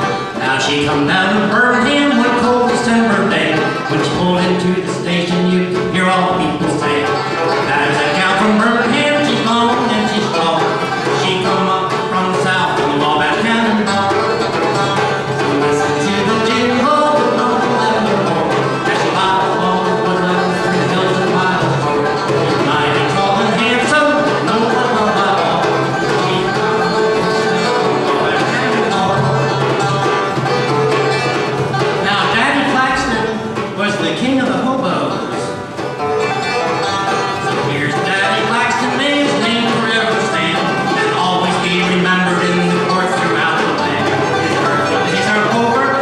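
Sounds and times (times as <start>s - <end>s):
banjo picking: 0.0s - 46.0s
strummed acoustic guitar: 0.0s - 46.0s.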